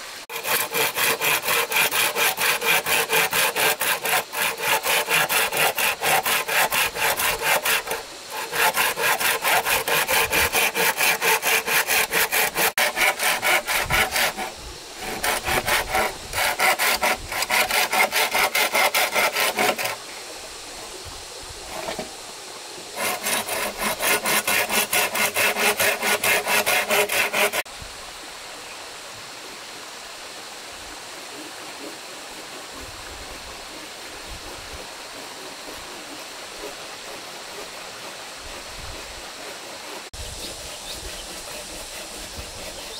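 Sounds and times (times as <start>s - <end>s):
hand saw cutting wood: 0.0s - 20.1s, 21.6s - 22.2s, 23.0s - 27.7s, 34.4s - 42.9s.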